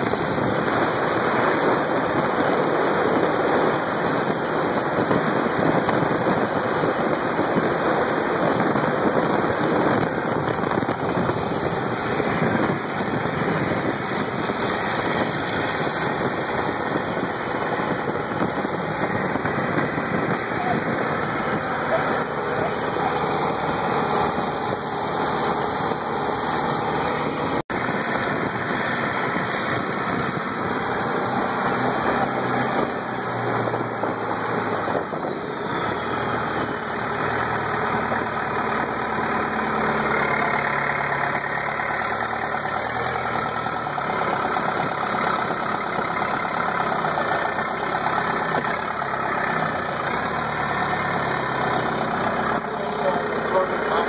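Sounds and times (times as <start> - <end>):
boat engine running: 0.0 - 54.0.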